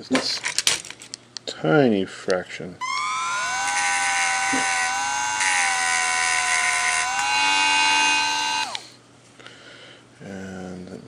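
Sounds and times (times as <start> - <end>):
grinding hiss on plastic: 2.8 - 9.0
rotary tool whining: 2.8 - 9.0.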